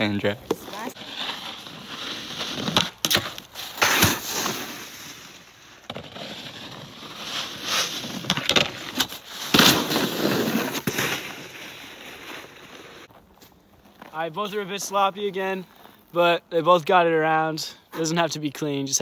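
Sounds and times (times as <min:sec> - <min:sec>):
snowboards scraping over snow: 0:00.6 - 0:13.1
hands dragging in snow: 0:09.2 - 0:13.1.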